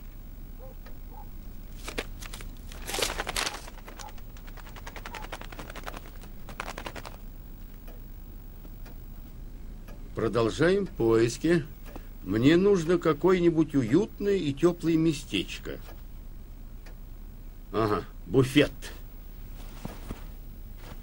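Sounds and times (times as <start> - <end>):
bird feet clicking on hard surface: 1.8 - 7.3.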